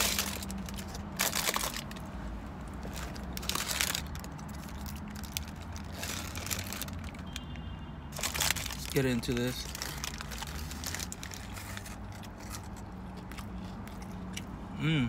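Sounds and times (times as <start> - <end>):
paper wrapper crinkling: 0.0 - 2.0, 2.8 - 7.2, 8.2 - 12.8.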